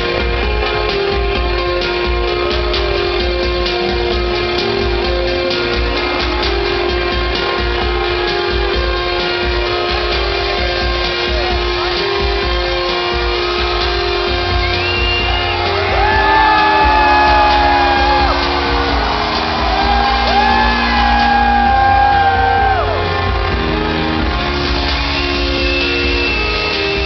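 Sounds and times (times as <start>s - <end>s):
electronic dance music: 0.0s - 27.0s
crowd shouting: 15.3s - 24.4s.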